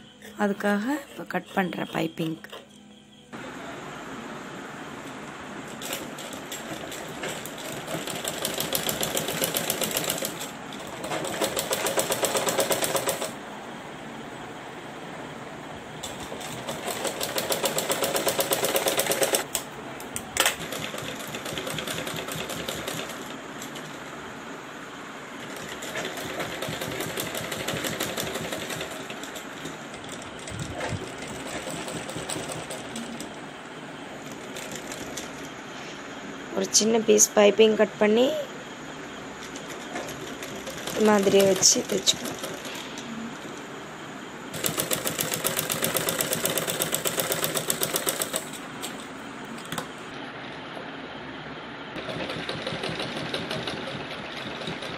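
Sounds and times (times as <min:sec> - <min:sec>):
sewing machine stitching: 0:05.8 - 0:13.4, 0:16.0 - 0:19.5, 0:20.4 - 0:24.0, 0:25.4 - 0:33.4, 0:39.4 - 0:43.5, 0:44.5 - 0:48.6, 0:52.0 - 0:54.9.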